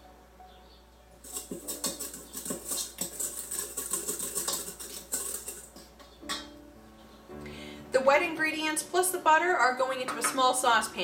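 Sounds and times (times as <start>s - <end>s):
utensil scraping metal bowl: 1.2s - 6.0s.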